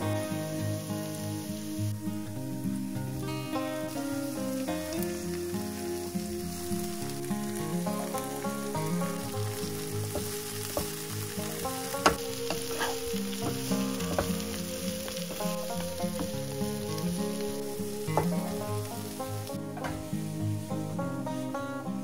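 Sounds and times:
background music: 0.0s - 22.0s
vegetables sizzling in frying pan: 0.0s - 22.0s
wooden spatula scraping pan: 10.2s - 14.4s.

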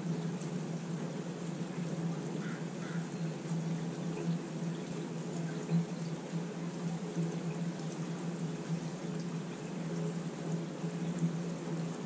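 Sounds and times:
low wavering hum: 0.0s - 12.0s
rain: 0.0s - 12.0s
running water: 0.0s - 12.0s.

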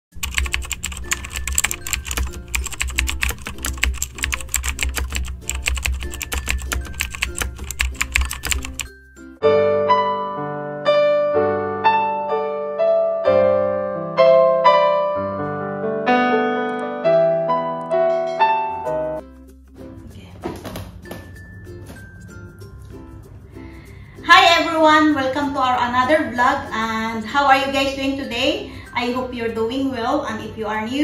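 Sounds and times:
rapid keyboard typing: 0.1s - 8.9s
piano melody: 0.1s - 19.9s
background music: 0.1s - 31.0s.

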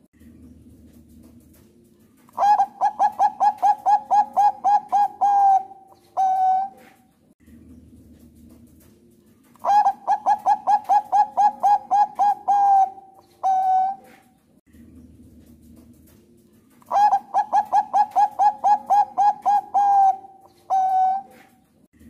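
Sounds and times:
dove cooing: 2.3s - 7.1s, 9.6s - 14.4s, 16.8s - 21.7s.

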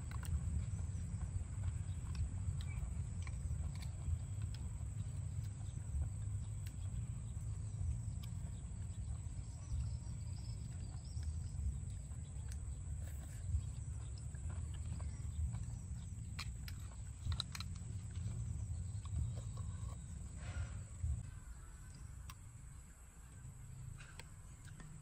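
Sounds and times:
chewing and wet mouth sounds: 0.0s - 22.4s
steady low rumble: 0.0s - 25.0s.

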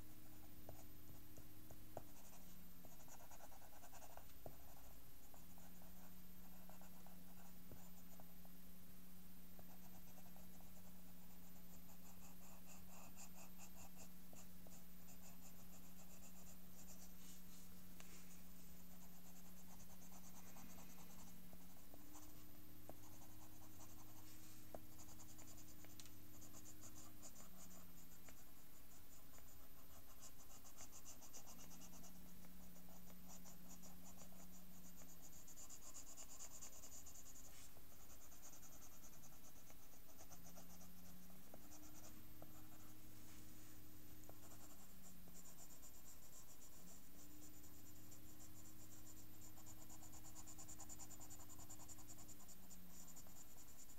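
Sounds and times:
faint low hum: 0.0s - 53.9s
pencil scratching on paper: 0.3s - 8.6s, 9.6s - 53.9s.

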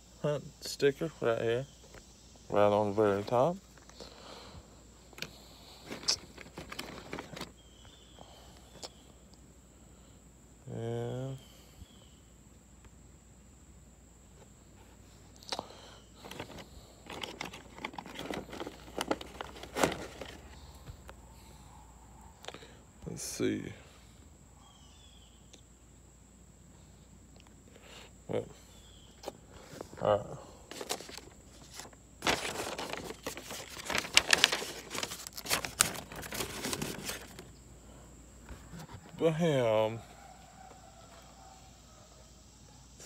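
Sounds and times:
packaging crinkling and rustling: 5.8s - 7.6s, 16.2s - 20.6s, 30.7s - 37.6s
packaging clicks: 16.2s - 20.4s, 30.7s - 37.5s.

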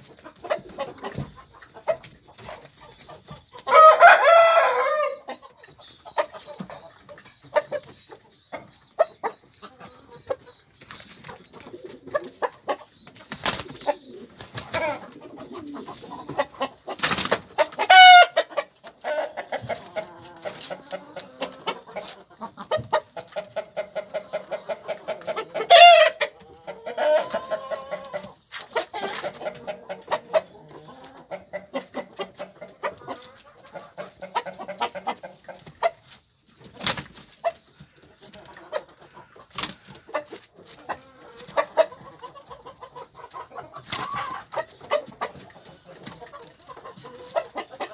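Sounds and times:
loud chicken calls: 0.0s - 10.7s, 13.5s - 36.2s, 36.9s - 47.9s
chickens clucking: 0.0s - 47.9s.

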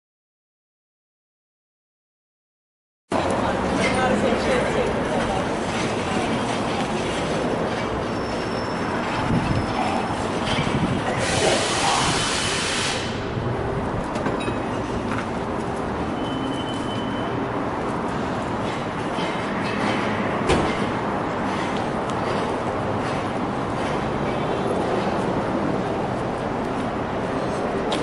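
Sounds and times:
city background rumble: 3.1s - 28.0s
bright hiss: 11.2s - 13.2s.

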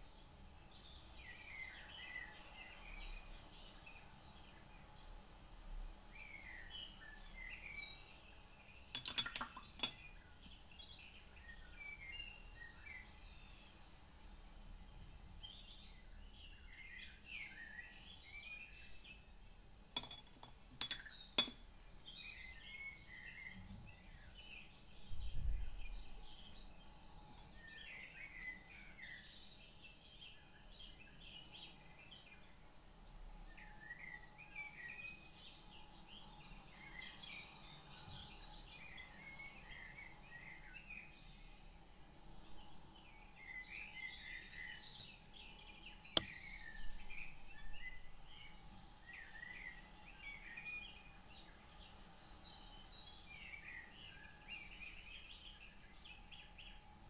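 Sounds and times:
birds chirping: 8.7s - 12.3s
sharp glassy clinks: 8.9s - 10.1s, 20.0s - 21.7s.

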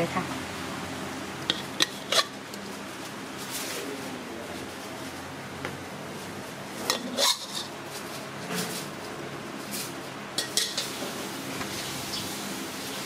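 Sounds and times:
metal spatula scraping ceramic dish: 1.5s - 2.3s, 6.9s - 7.7s.

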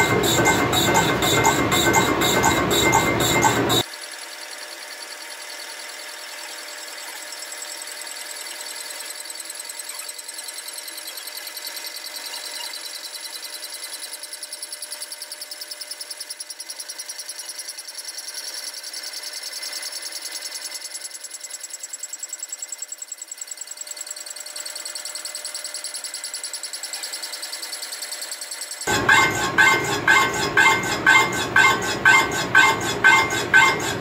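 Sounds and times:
milling cutter pulsing on metal: 0.0s - 3.8s, 28.9s - 34.0s.

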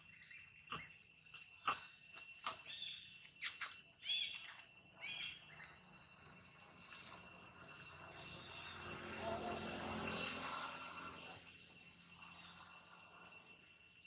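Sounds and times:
short chirping calls: 0.0s - 6.0s
insects droning: 0.0s - 14.0s.

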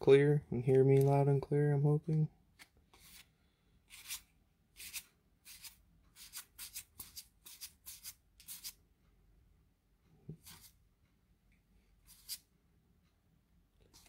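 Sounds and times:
cards swishing: 2.6s - 3.3s.

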